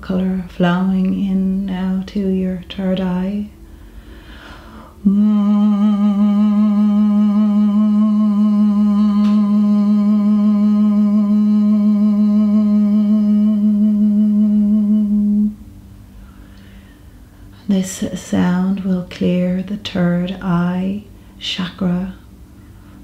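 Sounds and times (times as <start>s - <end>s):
woman breathing in: 3.6s - 5.0s, 16.1s - 17.6s
woman humming long note: 4.7s - 15.6s.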